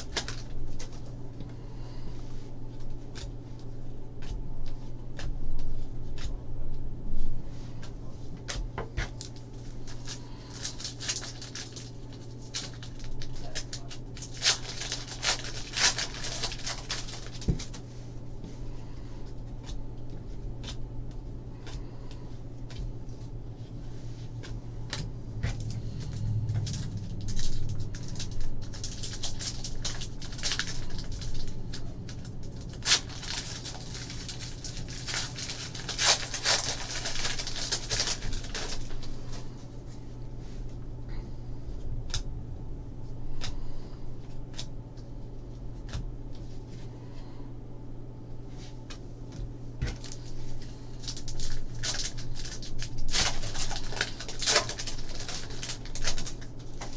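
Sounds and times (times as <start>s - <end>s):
foil wrapper crinkling and tearing: 0.0s - 1.1s, 9.1s - 17.8s, 25.6s - 39.5s, 49.9s - 56.9s.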